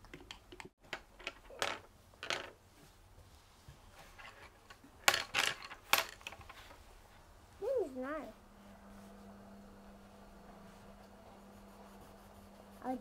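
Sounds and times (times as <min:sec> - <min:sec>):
marker scratching on paper: 0:11.2 - 0:13.0.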